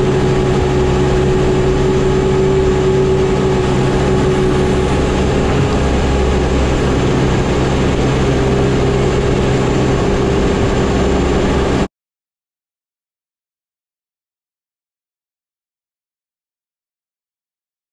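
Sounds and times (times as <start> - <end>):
diesel engine running: 0.0 - 11.9
steady whine: 0.0 - 11.9.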